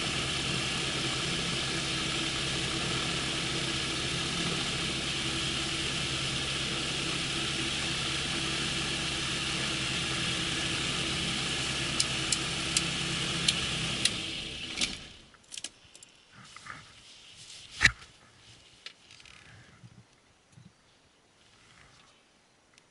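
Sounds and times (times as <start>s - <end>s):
aircraft engine idling: 0.0s - 15.2s
engine running down: 0.0s - 15.3s.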